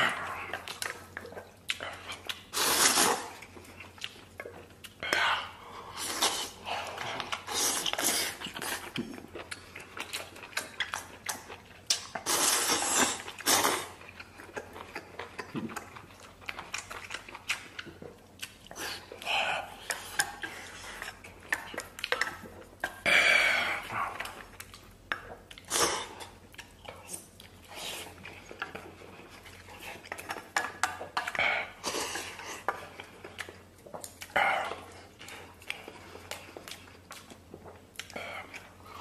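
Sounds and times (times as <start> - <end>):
mouth-open chewing: 0.0 - 23.0, 23.8 - 39.0
man slurping noodles: 2.6 - 3.4.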